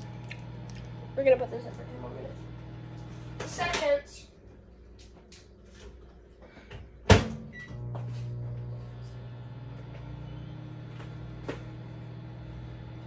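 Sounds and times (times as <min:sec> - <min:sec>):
microwave humming: 0:00.0 - 0:13.0
microwave door shutting: 0:07.1 - 0:07.9
microwave beep: 0:07.4 - 0:08.8.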